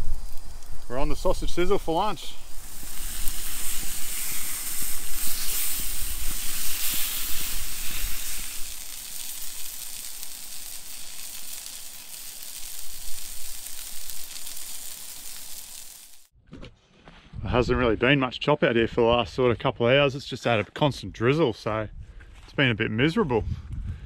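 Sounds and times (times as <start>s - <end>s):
sausages sizzling: 0.0s - 16.3s.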